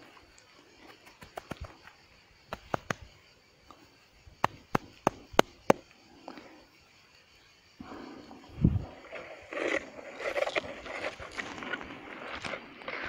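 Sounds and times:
grass snapping in hands: 2.5s - 3.1s.

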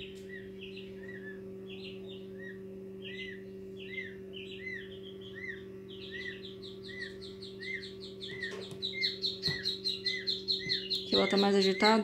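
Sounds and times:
chicks peeping: 0.0s - 12.0s
incubator humming: 0.0s - 12.0s.

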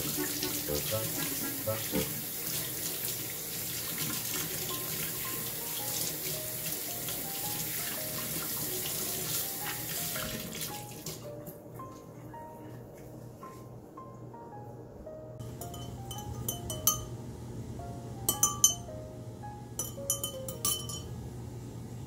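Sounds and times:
faucet running into a sink: 0.0s - 11.2s.

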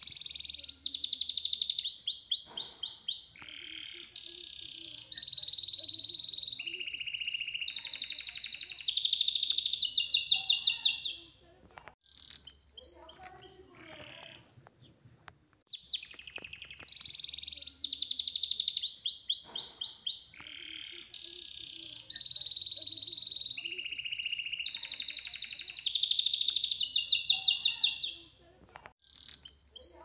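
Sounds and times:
songbird trilling: 0.0s - 11.3s, 15.7s - 28.3s.

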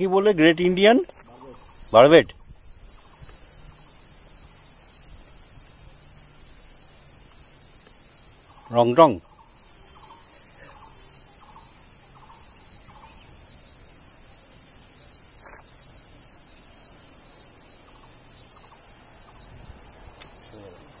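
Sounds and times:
insect chorus drone: 0.0s - 21.0s
faint bird calls: 1.1s - 2.2s, 8.5s - 13.9s.

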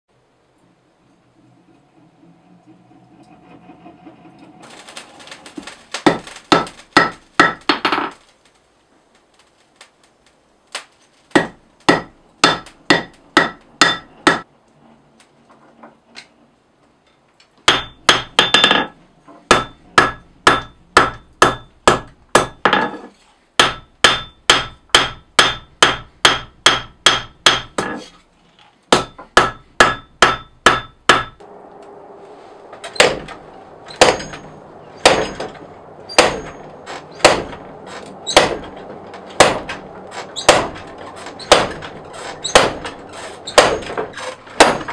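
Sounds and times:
background hiss: 4.6s - 15.4s, 25.3s - 44.9s
hammer striking steel on anvil: 6.0s - 7.7s, 11.4s - 14.5s, 17.7s - 18.9s, 19.5s - 22.9s, 23.6s - 28.0s, 28.9s - 31.4s, 32.8s - 44.9s.

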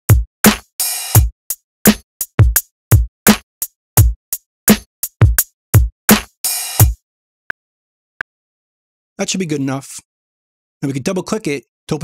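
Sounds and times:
electronic drum machine beat: 0.1s - 7.0s.

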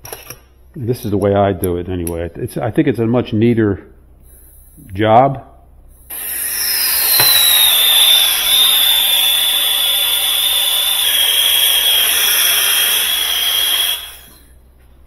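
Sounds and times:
soldering torch hissing and whistling: 6.0s - 14.6s.

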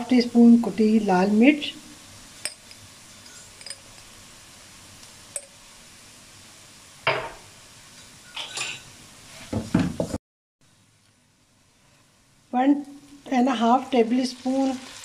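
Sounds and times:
faint sizzle: 0.0s - 15.0s
spatula scraping a wok: 3.0s - 3.8s, 8.0s - 9.6s.

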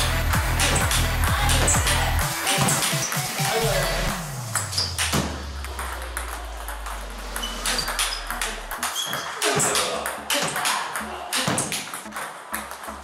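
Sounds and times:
ball cracking off paddles: 4.5s - 13.0s.

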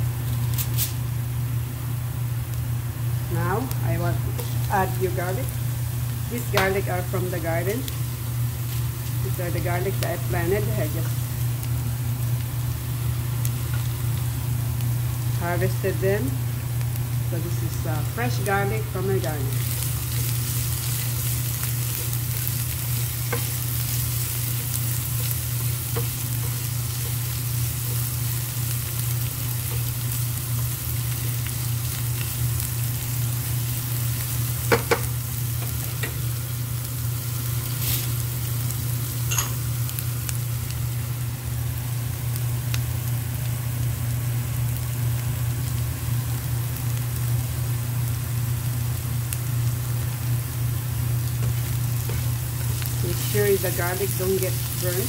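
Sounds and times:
garlic sizzling in a frying pan: 0.0s - 55.0s
low steady hum: 0.0s - 55.0s
spatula stirring: 19.6s - 29.1s.

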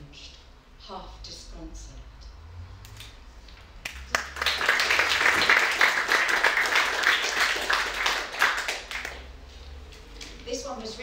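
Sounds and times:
audience applauding: 3.8s - 9.3s.

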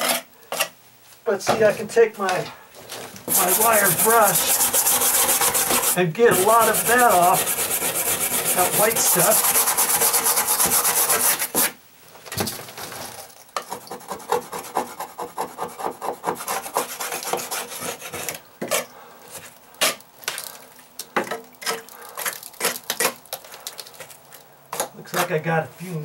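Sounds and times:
wire brush scrubbing wood: 1.7s - 11.8s, 13.7s - 18.9s.

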